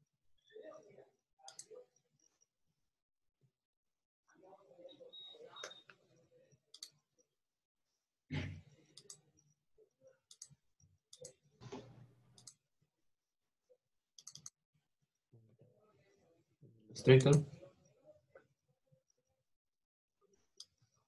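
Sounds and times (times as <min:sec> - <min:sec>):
faint computer mouse clicks: 0:12.3 - 0:12.6, 0:14.2 - 0:14.6.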